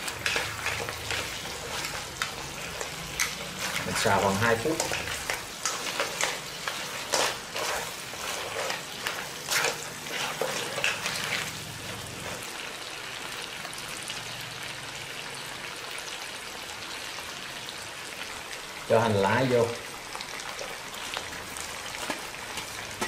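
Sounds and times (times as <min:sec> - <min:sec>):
utensils clacking and scraping: 0:00.0 - 0:12.5
sauce sizzling: 0:00.0 - 0:23.0.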